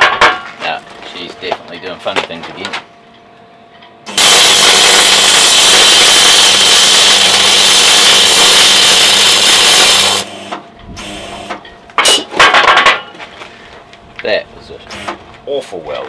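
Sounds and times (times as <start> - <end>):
welding arc hissing: 4.1 - 11.4.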